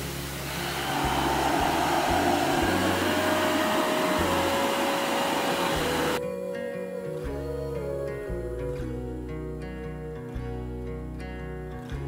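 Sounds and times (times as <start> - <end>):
soft background music: 0.0 - 12.0.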